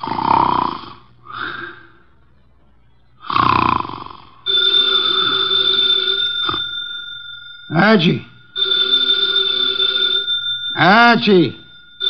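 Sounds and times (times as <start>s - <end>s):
man snoring: 0.0s - 1.8s, 3.2s - 4.4s
old telephone bell ringing: 4.3s - 12.0s.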